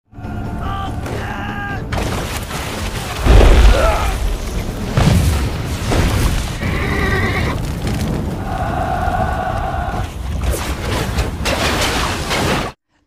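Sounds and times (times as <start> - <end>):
background score music: 0.1 - 12.6
man shouting: 0.2 - 1.9
cannon booms and explosions: 1.9 - 12.8.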